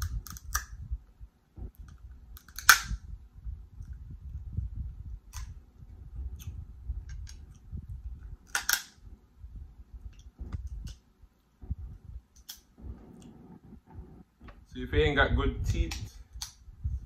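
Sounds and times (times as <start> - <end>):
handling and chewing noises: 5.2 - 9.0.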